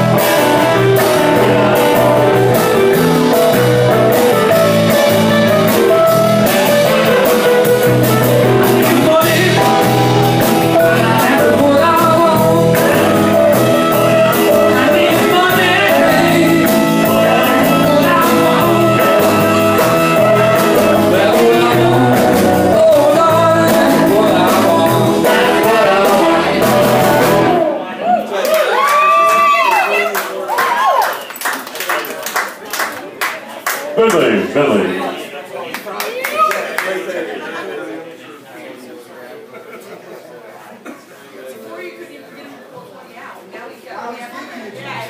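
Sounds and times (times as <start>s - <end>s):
drums: 0.0s - 27.8s
electric piano: 0.0s - 27.8s
electric guitars: 0.0s - 27.9s
saxophone: 12.4s - 22.8s.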